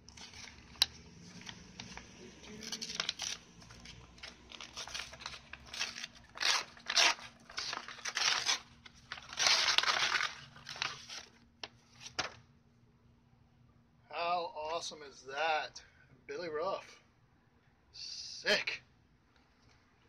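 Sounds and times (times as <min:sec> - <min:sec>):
paper envelope being torn open: 0:00.0 - 0:12.4.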